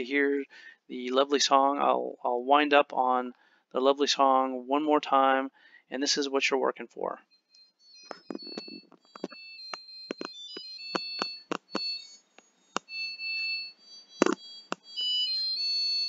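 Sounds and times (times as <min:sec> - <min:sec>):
dishwasher beeping tune: 0:08.1 - 0:16.0
sharp clicks: 0:10.1 - 0:11.9.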